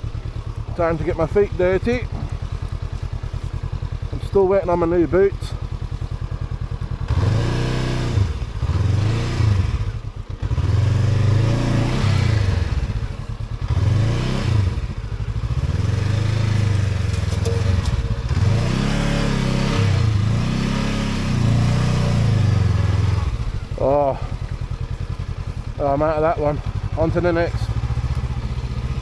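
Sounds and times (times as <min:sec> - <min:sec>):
motorcycle engine revving: 0:00.0 - 0:29.0
clatter and scrape: 0:17.0 - 0:18.5.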